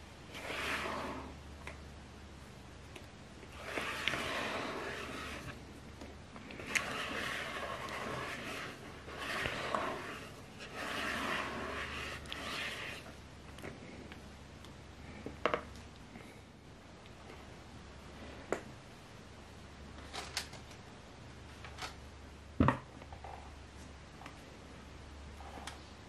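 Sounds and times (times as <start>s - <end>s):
spatula scraping batter in bowl: 0.3s - 1.4s, 3.4s - 5.7s, 6.4s - 13.2s.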